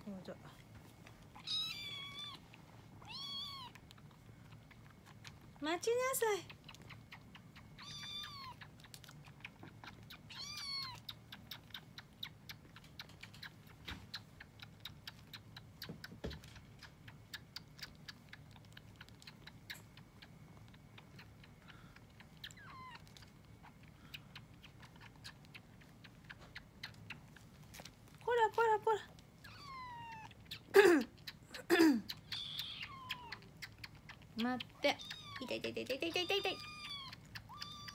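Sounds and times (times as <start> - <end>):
kitten suckling wet clicks: 1.0 - 28.3, 29.0 - 37.9
kitten mewing: 6.6 - 11.9, 29.4 - 37.9.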